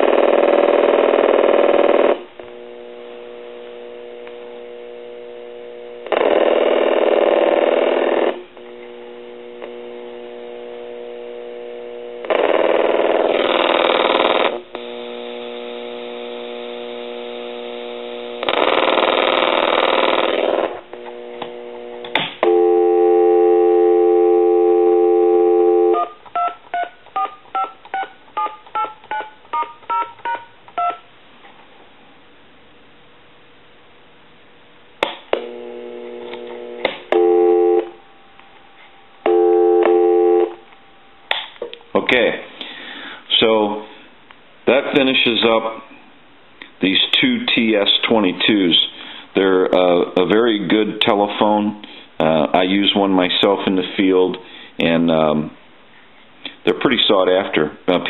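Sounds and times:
faint steady tone: 22.4 - 26.2, 35.4 - 41.3
dial tone: 22.4 - 31.0, 37.1 - 38.1, 39.2 - 40.7
telephone ringing: 22.4 - 31.1, 36.4 - 41.3
touch-tone dialing: 25.9 - 31.0.

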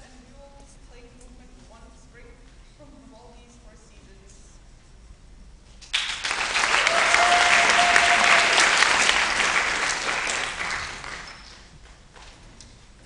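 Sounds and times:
audience applauding: 5.9 - 11.7.

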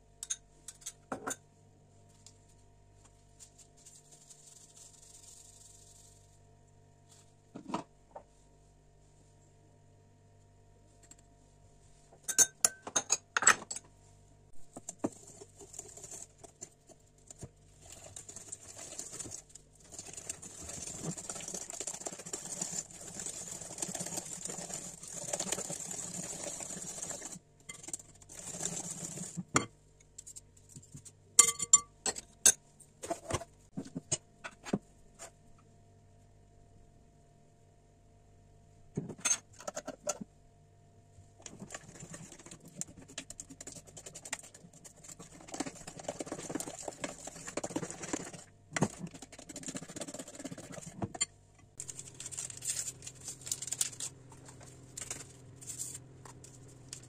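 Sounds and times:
whisk beating batter: 14.8 - 29.5, 41.4 - 51.2.

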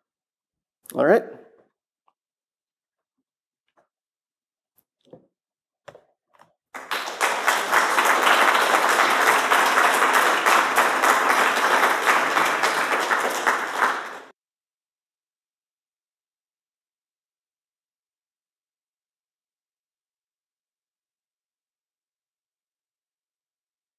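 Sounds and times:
audience applauding: 6.8 - 14.3.

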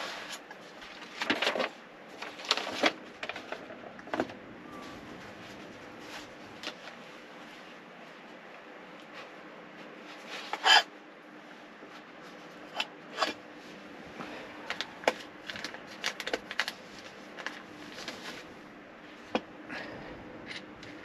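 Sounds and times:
plastic wrapping rustling: 0.0 - 7.7, 14.6 - 18.5.

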